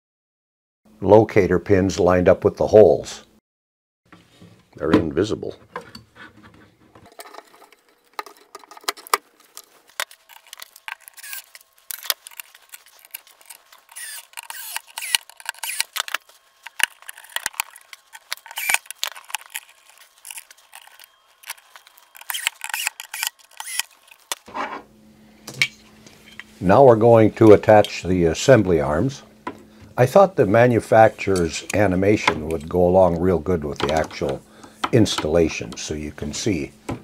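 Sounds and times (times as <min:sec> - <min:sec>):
metal mechanism clicking and rattling: 0:07.1 - 0:24.4.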